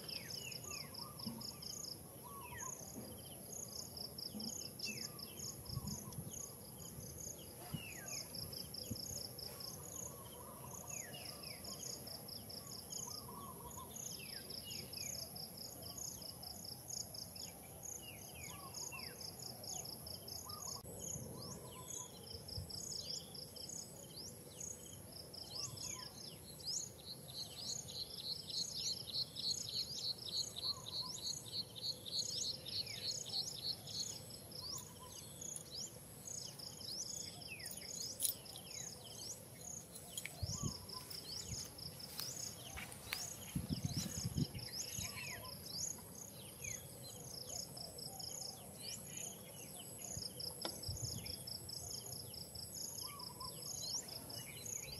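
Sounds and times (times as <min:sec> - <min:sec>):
insects chirping in pulsed trains: 0:00.0 - 0:54.9
birds whistling falling calls: 0:27.5 - 0:50.2.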